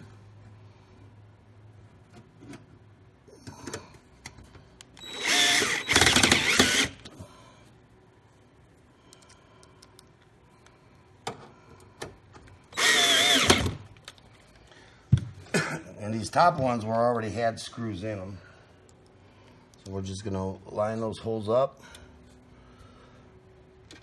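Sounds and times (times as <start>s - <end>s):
cordless drill driving screws: 5.0s - 7.0s, 12.7s - 13.8s.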